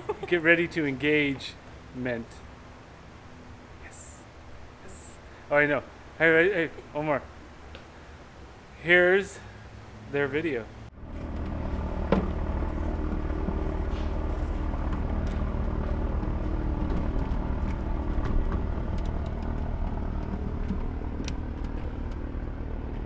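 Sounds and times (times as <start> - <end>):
engine idling: 10.9 - 23.0.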